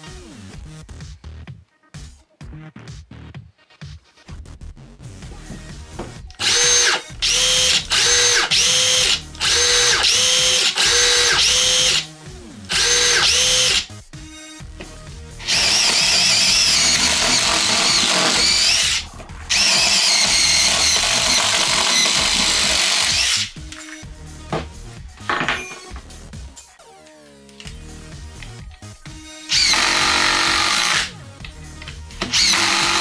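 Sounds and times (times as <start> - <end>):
impact driver driving screws: 6.4 - 12.0, 12.7 - 13.9, 15.4 - 23.5, 29.5 - 31.1, 32.2 - 33.0
impact driver motor whines: 6.4 - 12.0, 12.7 - 13.9, 15.4 - 23.5, 29.5 - 31.1, 32.2 - 33.0.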